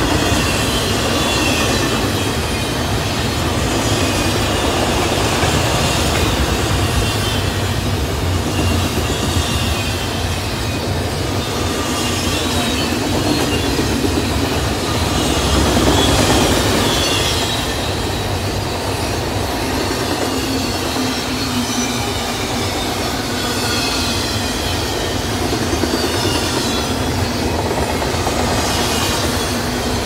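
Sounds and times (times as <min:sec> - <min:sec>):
freight train wheels rumbling: 0:00.0 - 0:30.0
high-pitched wheel squeal: 0:11.2 - 0:30.0.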